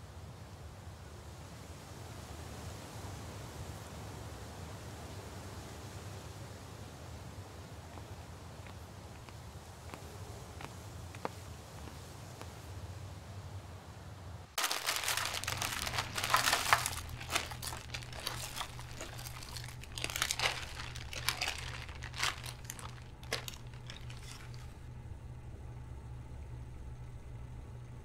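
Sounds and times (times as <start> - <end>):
plastic candy wrappers crinkling: 14.6 - 24.7.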